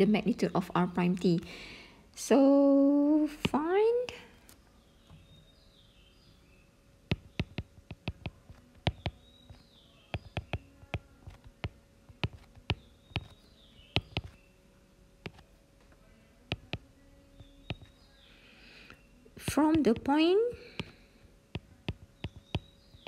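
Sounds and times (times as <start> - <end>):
stylus tapping on glass screen: 7.1 - 14.4, 16.5 - 17.9, 21.6 - 23.0.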